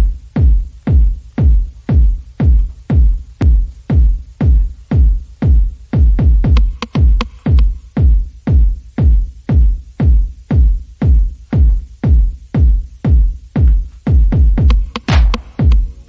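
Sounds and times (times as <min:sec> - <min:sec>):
drum machine kick beat: 0:00.0 - 0:16.0
electronic dance music: 0:00.0 - 0:16.0.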